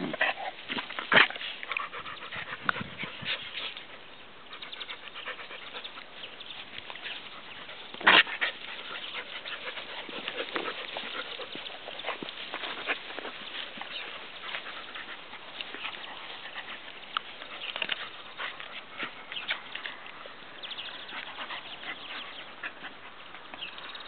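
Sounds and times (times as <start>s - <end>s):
dogs panting and scuffling: 0.0s - 24.0s.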